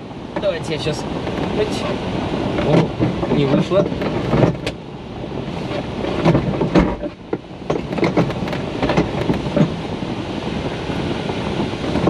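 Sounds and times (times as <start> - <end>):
airflow rushing: 0.0 - 12.0
lever clunks and rattles: 2.5 - 4.8, 5.7 - 9.8.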